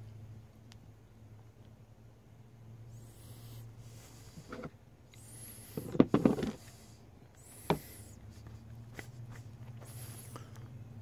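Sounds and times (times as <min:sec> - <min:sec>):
hard plastic knocks and clatter: 0:05.8 - 0:06.6.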